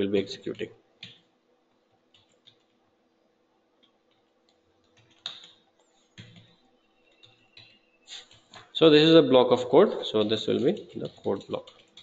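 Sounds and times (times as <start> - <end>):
faint keyboard keystrokes: 3.8 - 8.8, 10.2 - 12.0.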